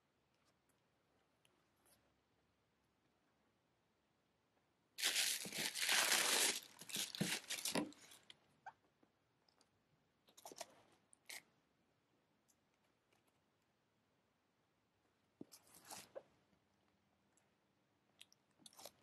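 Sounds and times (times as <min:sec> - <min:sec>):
tissue paper crinkling: 0:05.0 - 0:08.2.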